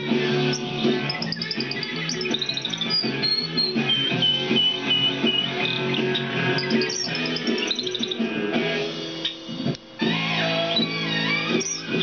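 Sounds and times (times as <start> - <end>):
canary singing: 0.0 - 12.0
punk rock music: 0.0 - 12.0.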